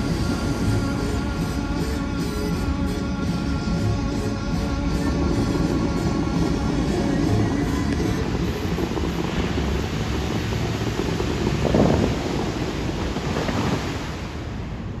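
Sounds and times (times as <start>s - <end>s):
fountain water splashing: 0.0s - 1.8s, 4.9s - 15.0s.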